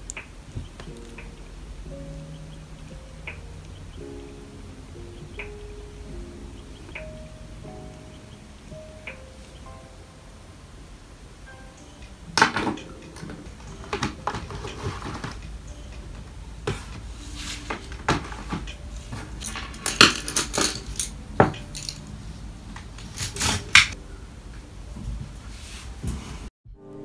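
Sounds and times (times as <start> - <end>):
art supplies clinking and knocking: 12.3 - 22.1.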